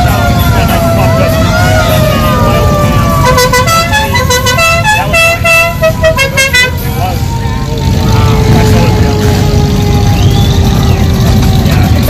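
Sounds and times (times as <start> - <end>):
engine noise of passing cars: 0.0 - 12.0
siren-like gliding tone: 0.0 - 12.0
musical car horn tune: 3.1 - 7.2.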